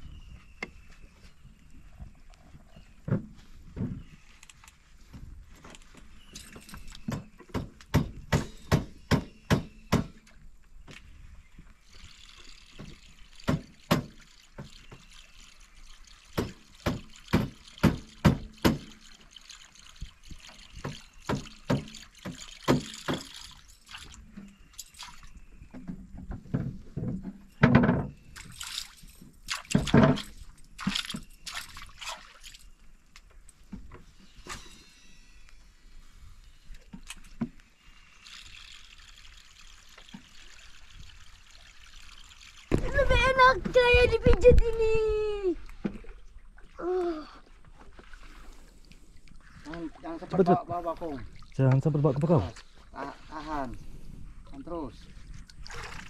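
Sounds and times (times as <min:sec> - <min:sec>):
fishing line hissing: 0:11.8 - 0:18.2, 0:34.0 - 0:42.7
fishing reel clicking: 0:11.9 - 0:23.9, 0:38.0 - 0:42.7.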